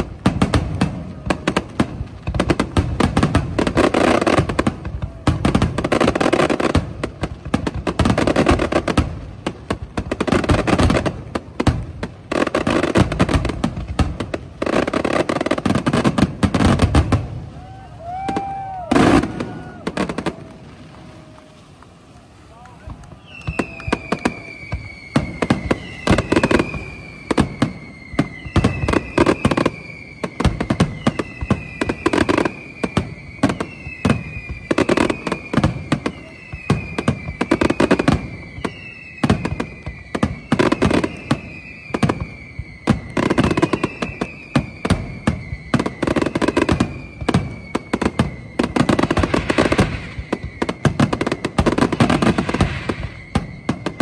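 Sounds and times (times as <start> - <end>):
fireworks bursting: 0.0 - 54.0
high descending whistle: 17.3 - 54.0.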